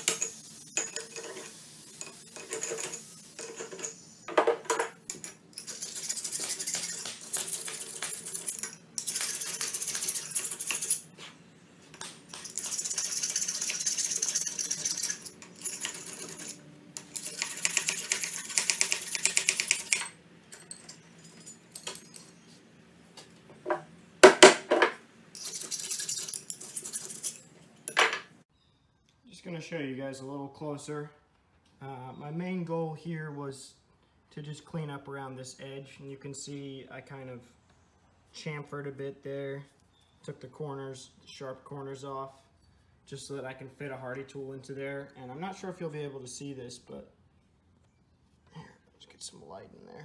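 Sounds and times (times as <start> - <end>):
chisel and file rasping on steel: 5.6 - 11.2, 12.3 - 20.0, 25.4 - 27.5
sharp metallic clinks: 18.9 - 22.6.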